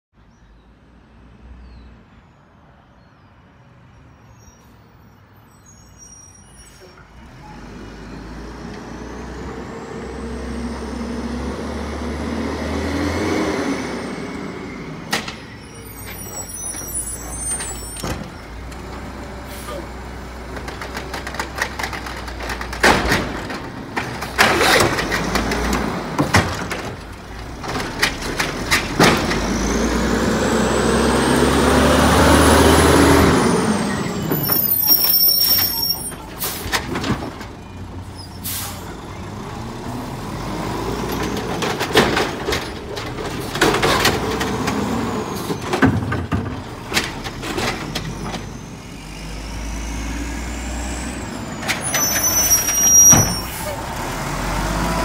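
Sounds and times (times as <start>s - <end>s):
garbage truck diesel engine growling: 6.7s - 55.0s
air brakes knocking and hissing: 19.4s - 19.9s, 22.6s - 26.9s, 33.9s - 37.4s, 38.1s - 39.0s, 51.6s - 53.8s.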